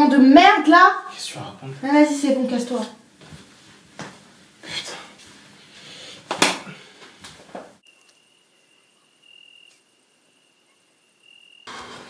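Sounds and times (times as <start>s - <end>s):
crickets chirping: 7.8s - 11.7s.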